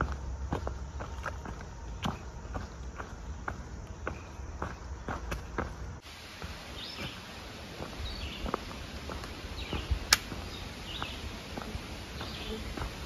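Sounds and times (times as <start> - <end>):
birds chirping: 0.0 - 13.0
footsteps on dirt trail: 0.0 - 13.0
sharp click: 10.1 - 10.4.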